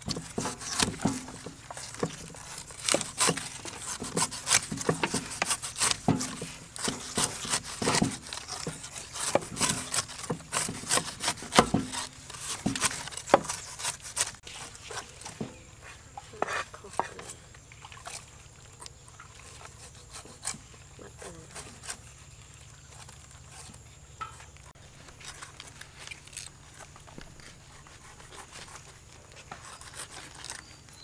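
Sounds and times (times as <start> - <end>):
cleaver cutting on wooden block: 0.0 - 17.4, 19.4 - 22.1, 27.2 - 31.0
knives slicing pineapple: 0.0 - 18.2, 25.1 - 31.0.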